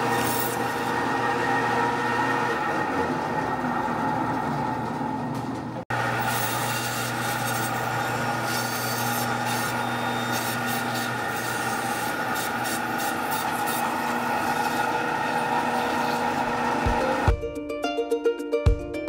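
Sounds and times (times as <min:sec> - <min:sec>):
saw blade grinding through bone: 0:00.0 - 0:00.9, 0:06.2 - 0:17.0
band saw humming: 0:00.0 - 0:17.3.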